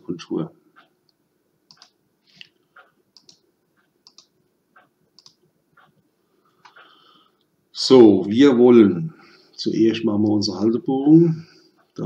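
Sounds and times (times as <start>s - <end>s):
computer mouse clicking: 1.7s - 6.0s.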